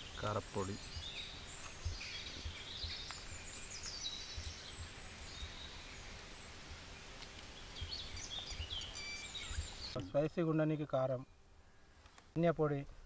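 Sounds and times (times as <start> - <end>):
small birds chirping: 0.0 - 12.8
soft low thumps: 0.8 - 5.6.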